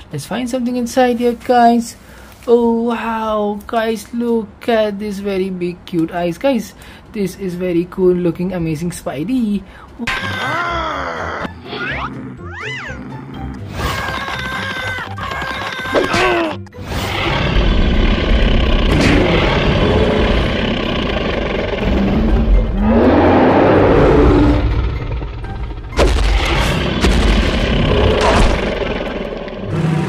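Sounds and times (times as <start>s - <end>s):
music: 9.9s - 30.0s
creature roar: 10.0s - 30.0s
heavy rumbling booms: 25.8s - 29.3s
sharp hit: 25.9s - 29.0s.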